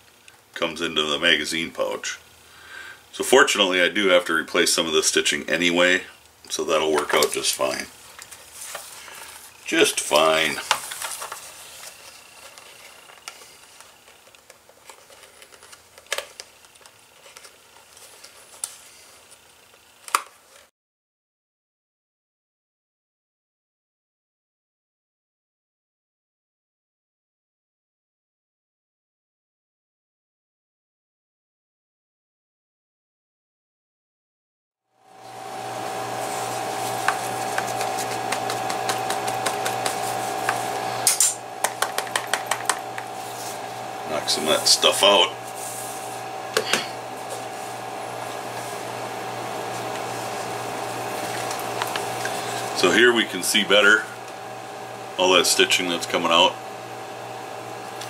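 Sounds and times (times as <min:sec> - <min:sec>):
electrical hum: 0:00.0 - 0:20.1, 0:35.0 - 0:58.0
blade scraping leather: 0:35.9 - 0:47.8.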